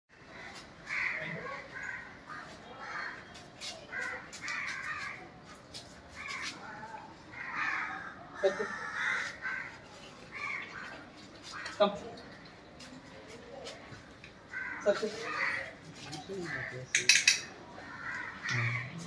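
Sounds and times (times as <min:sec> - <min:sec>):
crows cawing: 0:00.3 - 0:03.2, 0:03.9 - 0:05.3, 0:06.1 - 0:12.5, 0:14.5 - 0:19.0.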